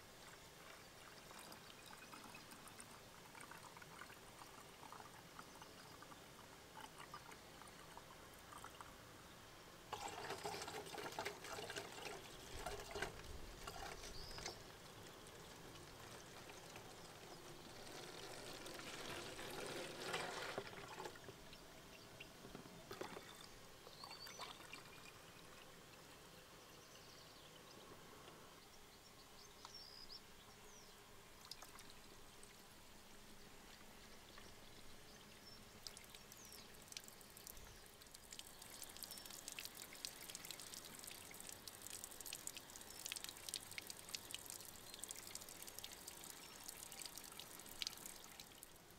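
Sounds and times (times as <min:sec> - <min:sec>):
liquid pouring into plastic bottles: 0:00.6 - 0:06.1, 0:09.9 - 0:21.4, 0:22.5 - 0:25.8, 0:35.7 - 0:48.9.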